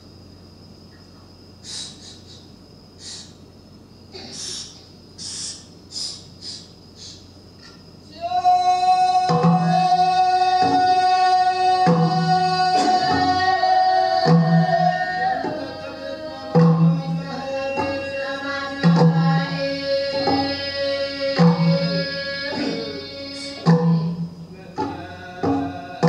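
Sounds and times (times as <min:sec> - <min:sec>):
person singing long notes: 0:08.1 - 0:26.0.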